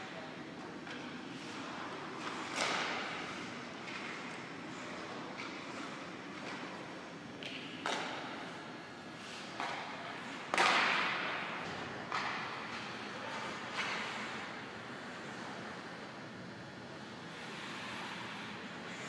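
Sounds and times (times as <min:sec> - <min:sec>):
ice rink background hiss: 0:00.2 - 0:16.2, 0:16.8 - 0:19.0
hockey pucks and sticks cracking: 0:09.6 - 0:11.4.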